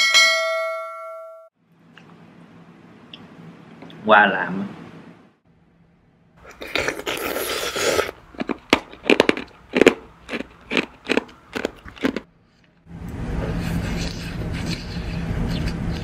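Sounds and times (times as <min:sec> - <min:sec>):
chewing frozen fruit crunching: 0:06.4 - 0:12.8.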